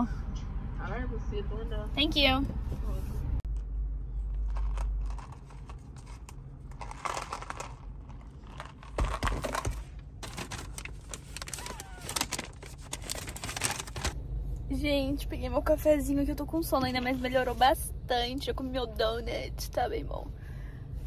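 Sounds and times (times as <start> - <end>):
paper bag crinkling: 4.4 - 14.2.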